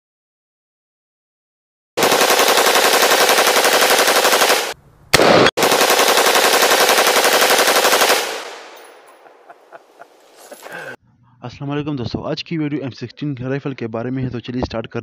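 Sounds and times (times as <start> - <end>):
automatic rifle fire: 2.0 - 9.1.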